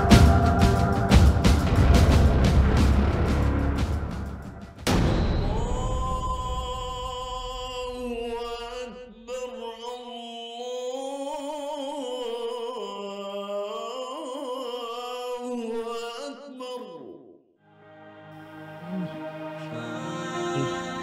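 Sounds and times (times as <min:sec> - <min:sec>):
loud musical hit: 0:00.0 - 0:08.8
solo voice chant-like singing: 0:05.4 - 0:17.4, 0:18.5 - 0:21.0.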